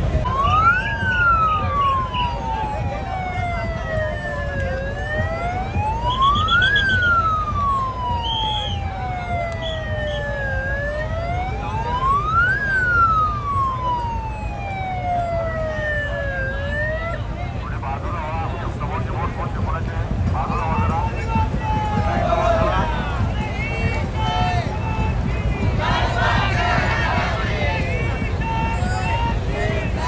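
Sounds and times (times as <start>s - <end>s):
siren wailing: 0.0s - 17.8s.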